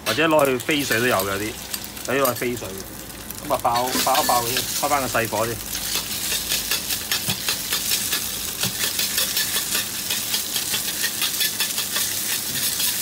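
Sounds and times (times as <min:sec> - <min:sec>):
meat sizzling in a wok: 0:00.0 - 0:13.0
metal ladle scraping wok: 0:03.6 - 0:05.1, 0:05.7 - 0:13.0.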